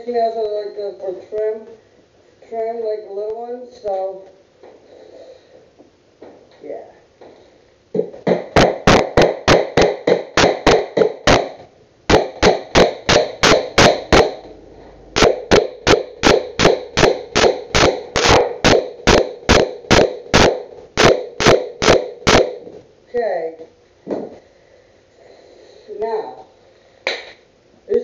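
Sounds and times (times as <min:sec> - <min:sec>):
hammer driving nail into wood: 0:08.3 - 0:14.5, 0:15.2 - 0:22.6.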